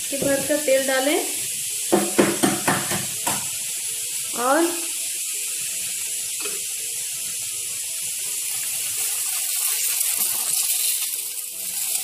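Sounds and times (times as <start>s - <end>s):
oil sizzling in a ladle: 0.0s - 12.0s.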